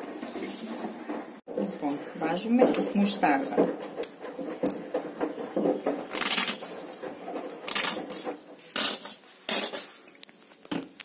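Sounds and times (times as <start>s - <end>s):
squeeze bottle sputtering: 7.6s - 10.1s.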